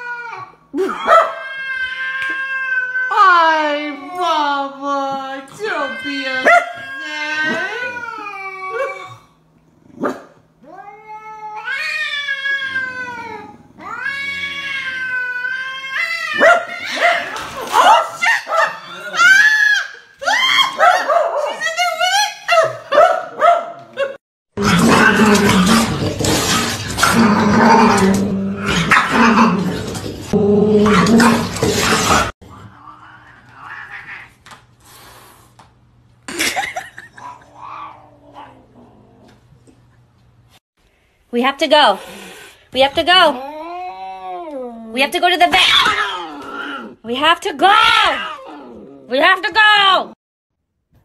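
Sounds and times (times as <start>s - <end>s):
cat yowling: 10.6s - 21.2s
animal growling and snarling: 12.5s - 15.2s, 24.6s - 34.3s, 45.7s - 47.0s, 48.1s - 49.2s.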